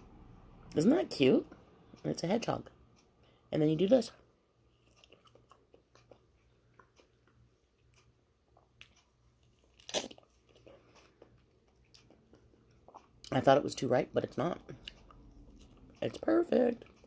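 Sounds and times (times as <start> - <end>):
biting and chewing mango: 4.7 - 13.3.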